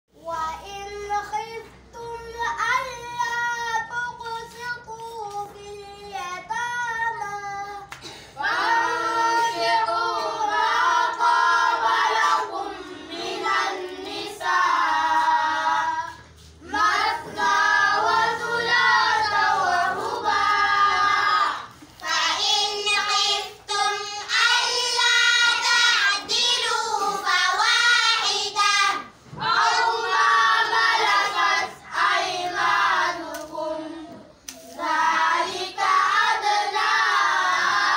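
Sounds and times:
boys chanting in unison: 8.4 - 34.2.

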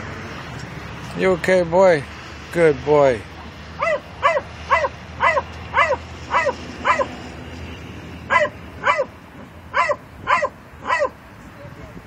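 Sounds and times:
dog barking inside a car: 3.8 - 7.2, 8.3 - 11.2.

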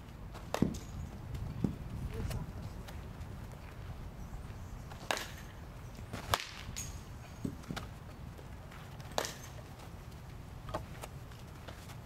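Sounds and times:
bat cracking a ball: 0.4 - 1.0, 5.0 - 7.9, 9.1 - 9.6.

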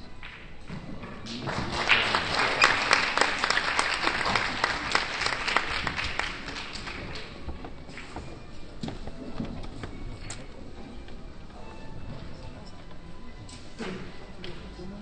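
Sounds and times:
spectators applauding: 1.2 - 7.4.

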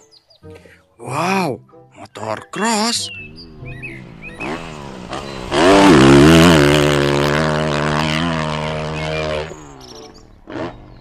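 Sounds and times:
dirt bike engine revving: 3.1 - 11.0.

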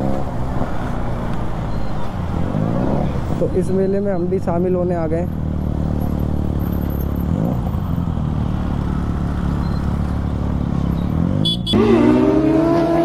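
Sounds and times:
louder engine rising in pitch: 11.3 - 13.0.

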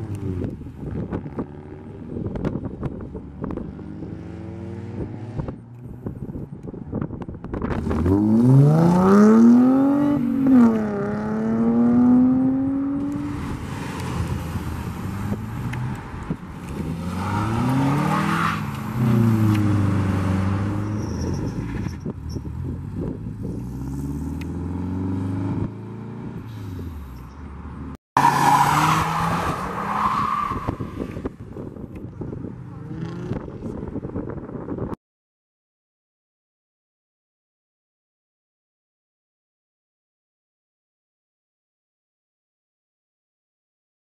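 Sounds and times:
car engines revving: 0.0 - 6.8, 7.4 - 34.0.

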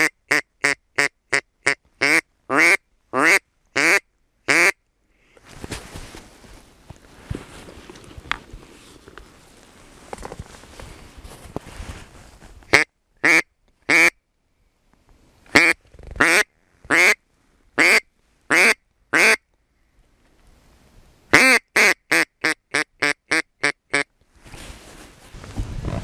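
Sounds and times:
duck quacking: 0.0 - 4.8, 15.5 - 17.2, 17.8 - 19.4.

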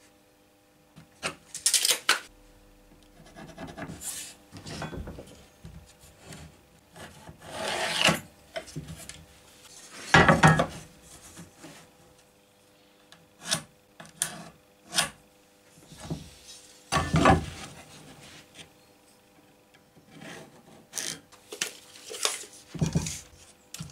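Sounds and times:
wood being rubbed and scraped: 5.9 - 8.1.

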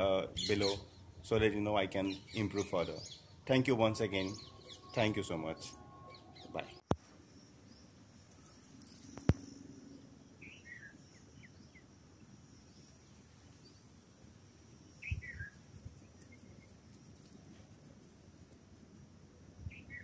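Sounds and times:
bird chirps: 0.0 - 13.0, 15.0 - 17.3, 19.7 - 20.0.

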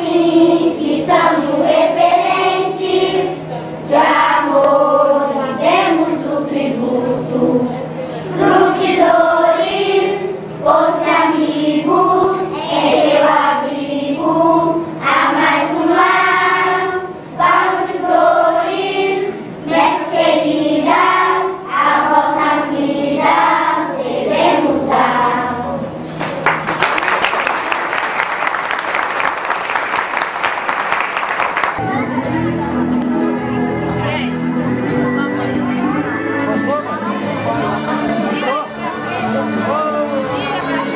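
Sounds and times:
group of voices singing: 0.0 - 26.0
people clapping: 26.2 - 31.8.

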